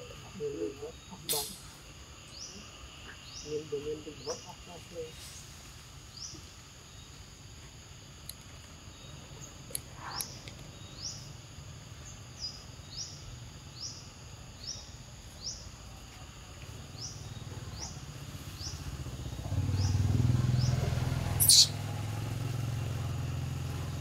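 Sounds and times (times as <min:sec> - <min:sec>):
bird chirping: 0:00.0 - 0:07.2, 0:08.4 - 0:11.4, 0:12.0 - 0:15.8, 0:16.6 - 0:21.9
insect drone: 0:00.0 - 0:24.0
low engine rumble: 0:16.4 - 0:24.0.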